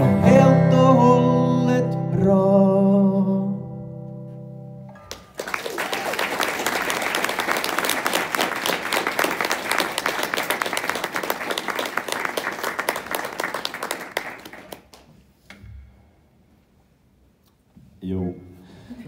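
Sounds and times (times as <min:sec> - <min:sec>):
hands clapping close by: 0:05.0 - 0:15.2
audience applauding: 0:05.1 - 0:15.1.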